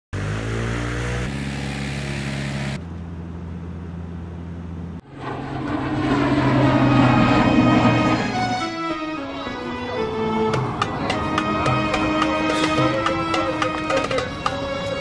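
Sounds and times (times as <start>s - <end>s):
propeller airplane engine drone: 0.2s - 9.0s
music: 7.1s - 15.0s.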